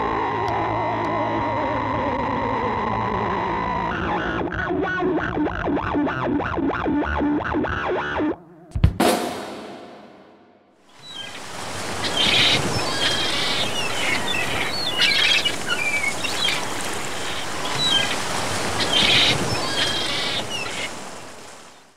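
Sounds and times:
surf: 0:10.9 - 0:21.9
harsh bird calls: 0:11.0 - 0:21.2
birds chirping: 0:11.0 - 0:21.8.

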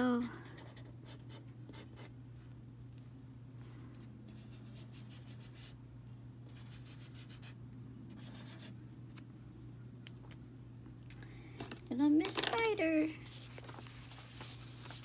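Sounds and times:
steady low hum: 0:00.0 - 0:15.0
marker scratching on paper: 0:04.3 - 0:05.7, 0:06.5 - 0:08.7.

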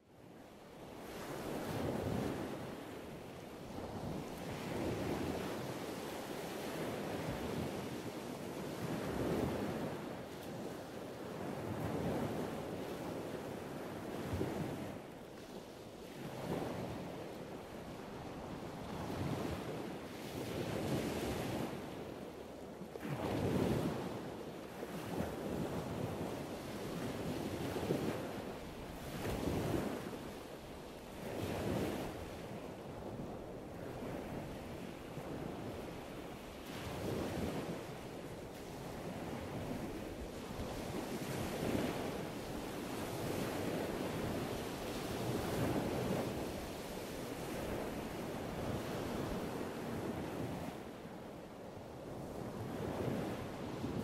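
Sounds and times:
wind buffeting microphone: 0:31.2 - 0:50.8.

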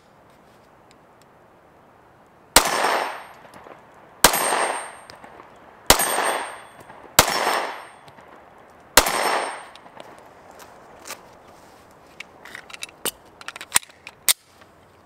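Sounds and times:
pistol shots with echo: 0:02.6 - 0:08.0, 0:09.0 - 0:09.8.

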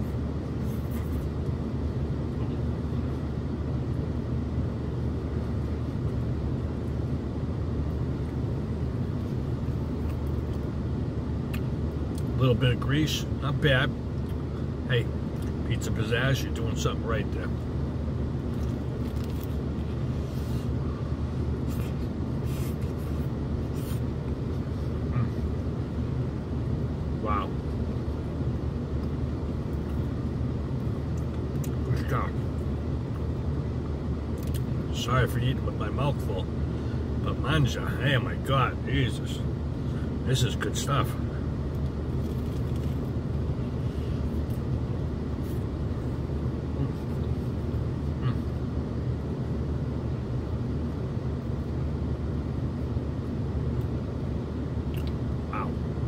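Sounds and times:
chewing crunchy crust: 0:09.1 - 0:10.8, 0:18.4 - 0:20.8, 0:21.5 - 0:25.7, 0:34.3 - 0:34.8, 0:41.7 - 0:44.8, 0:54.9 - 0:55.2.

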